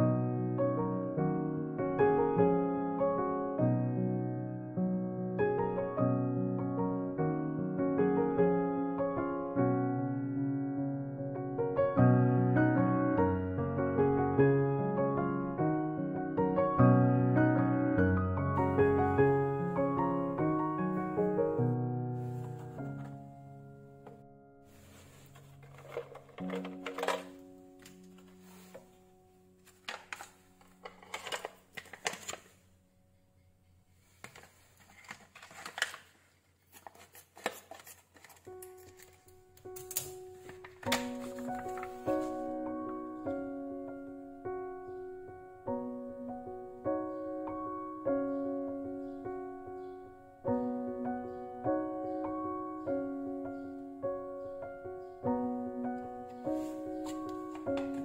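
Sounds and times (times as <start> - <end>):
soft piano chords: 0.0 - 31.2, 38.6 - 58.0
plastic pouch crinkling: 24.8 - 28.8, 29.6 - 32.6, 34.1 - 42.5.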